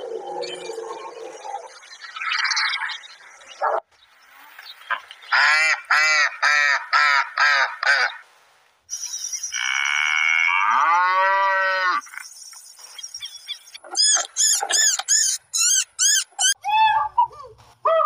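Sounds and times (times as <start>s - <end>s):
ducks quacking: 4.9s - 8.2s.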